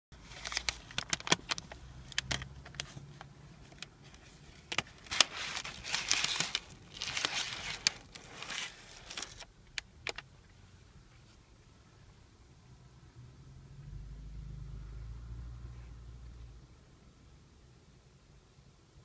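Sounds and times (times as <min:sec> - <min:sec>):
paper bag crinkling: 0:00.2 - 0:10.2.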